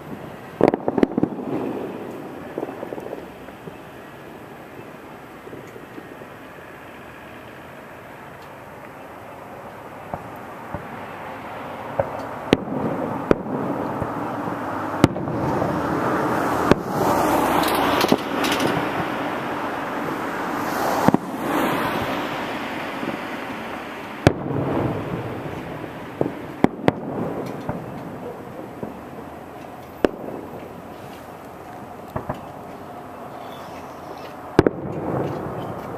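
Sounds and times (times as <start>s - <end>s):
car passing: 0.0s - 35.9s
distant fireworks bangs: 0.0s - 35.9s
street noise: 0.0s - 35.9s.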